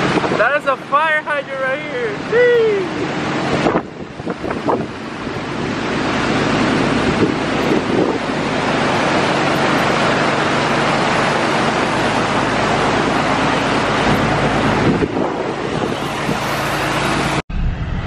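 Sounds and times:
wind on microphone: 0.0s - 0.5s, 2.4s - 18.0s
water rushing around tyres: 0.0s - 17.4s
truck engine running: 0.0s - 18.0s.

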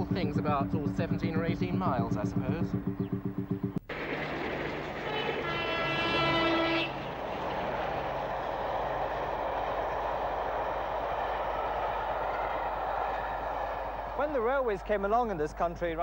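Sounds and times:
train passing: 3.9s - 16.0s
locomotive horn: 4.2s - 10.3s.

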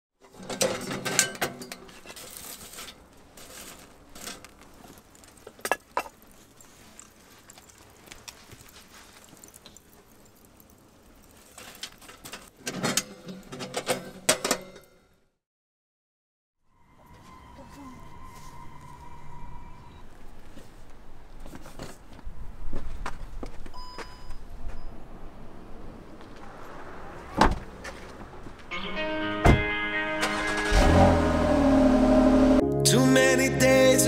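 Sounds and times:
metal stove door clinking: 0.5s - 1.9s.

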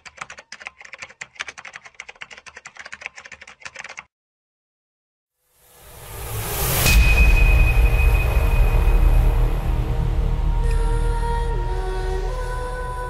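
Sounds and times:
keyboard typing clicks: 0.0s - 4.1s
rising swell of sound: 5.5s - 12.6s.

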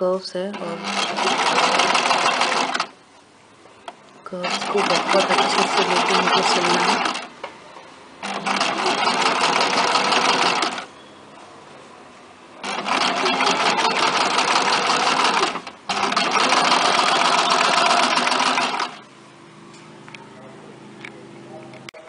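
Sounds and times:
sewing machine stitching: 0.5s - 3.0s, 4.4s - 7.3s, 8.2s - 10.9s, 12.6s - 19.0s.

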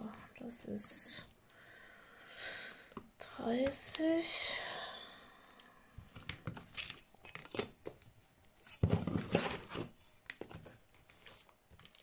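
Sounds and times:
canvas crinkling and rustling: 6.2s - 12.0s.

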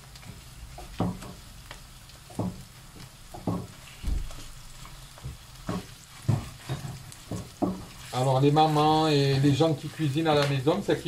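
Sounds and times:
beef and onions sizzling in pan: 0.0s - 11.0s
wooden spatula knocking pan: 0.2s - 11.0s.

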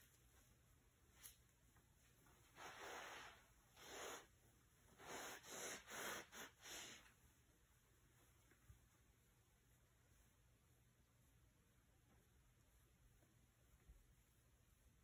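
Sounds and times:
faint airy breaths: 2.5s - 7.3s.

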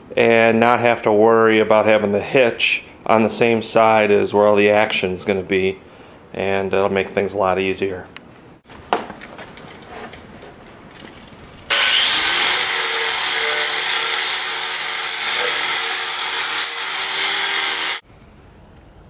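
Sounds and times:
angle grinder grinding steel: 11.6s - 18.0s.

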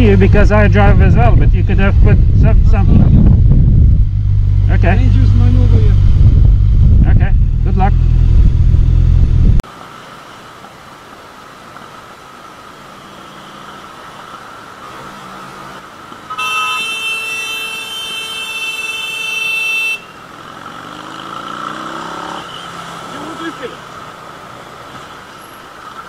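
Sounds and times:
motorcycle engine: 0.0s - 9.6s, 20.0s - 24.6s
road noise: 0.0s - 26.0s
vehicle horn blast: 16.3s - 20.2s.

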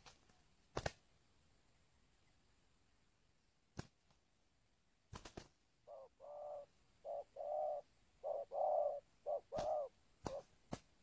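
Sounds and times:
dove cooing: 5.8s - 10.6s.

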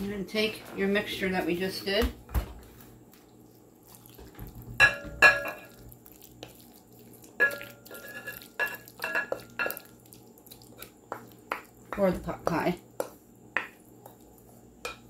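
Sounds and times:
glass dishes clinking: 4.8s - 5.7s
spoon scraping food mixture: 5.5s - 15.0s.

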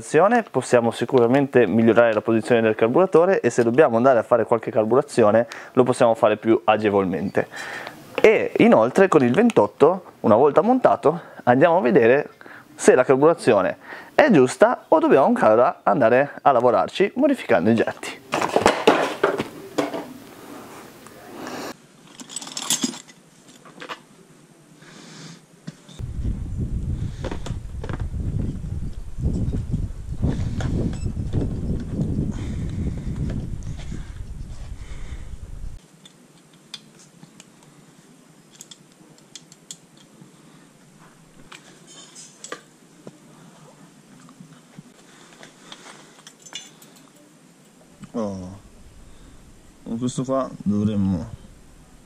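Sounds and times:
metal parts clicking: 22.1s - 23.7s, 38.5s - 40.1s
soft hiss: 23.2s - 52.0s
low rumble: 26.0s - 35.8s, 48.6s - 49.9s, 51.2s - 52.0s.

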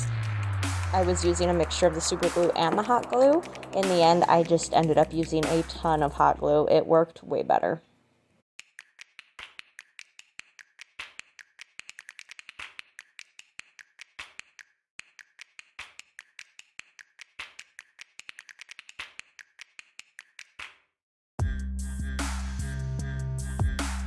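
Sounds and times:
plastic toy clicks and taps: 8.6s - 20.8s.

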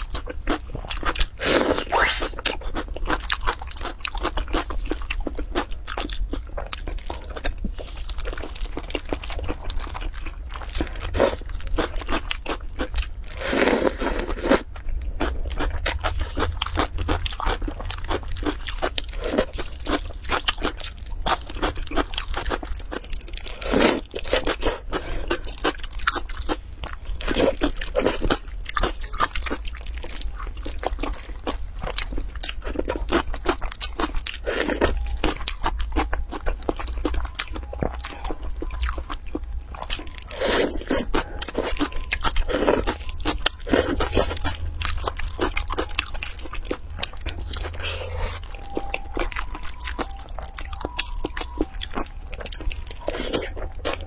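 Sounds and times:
wet chewing and crunching: 0.0s - 54.0s
low hum: 34.1s - 54.0s.

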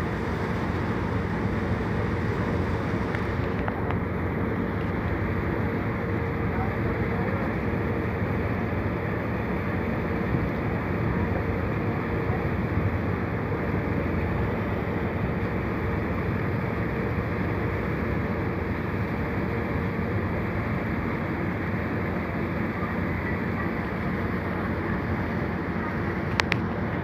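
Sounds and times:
ferry engine drone: 0.0s - 27.0s
water rushing along hull: 0.0s - 27.0s.

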